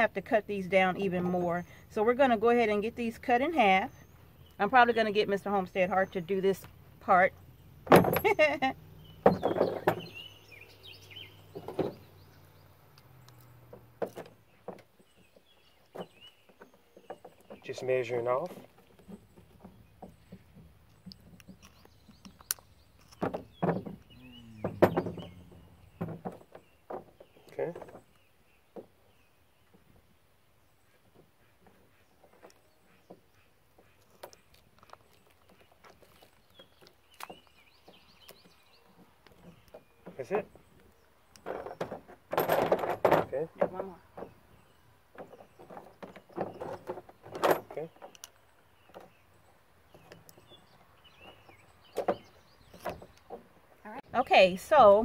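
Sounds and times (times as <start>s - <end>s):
faint bird chirps: 19.0s - 29.8s.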